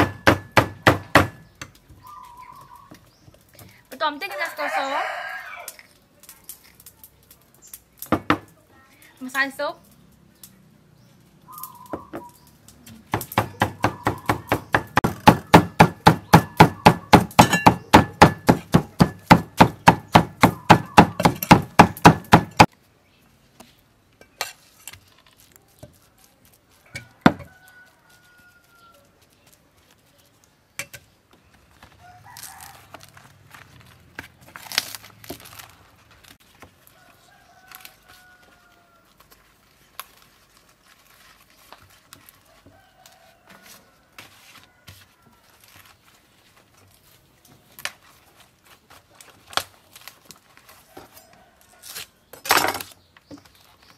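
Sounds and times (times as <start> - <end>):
cleaver chopping on wooden block: 0.0 - 1.7, 13.1 - 22.7.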